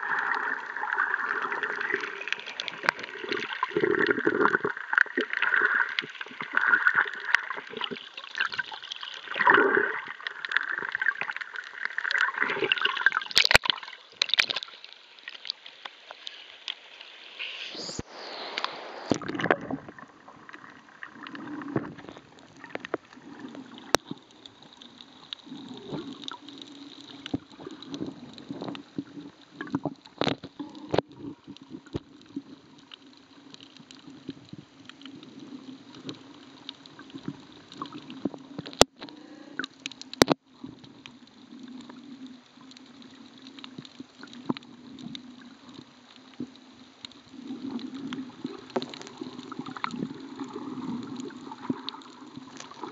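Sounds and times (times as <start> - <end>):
faint crackling: 0.0 - 52.9.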